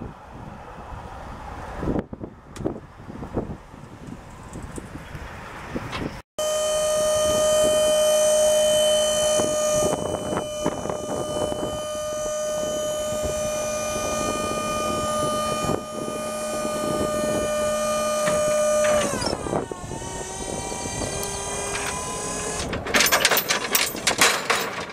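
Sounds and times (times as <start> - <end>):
hydraulic pump motor whining: 6.4 - 24.9
metal clanks and rattles: 22.6 - 24.9.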